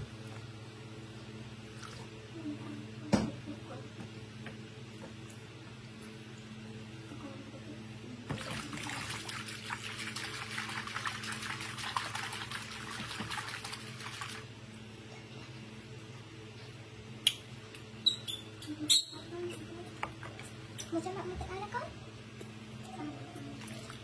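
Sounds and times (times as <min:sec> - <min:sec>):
water splashing in plastic basin: 0:08.3 - 0:14.5.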